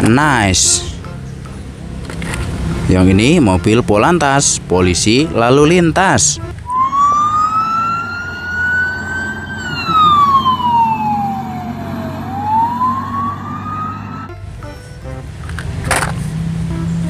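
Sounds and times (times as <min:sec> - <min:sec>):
police siren wailing: 0:06.6 - 0:14.3.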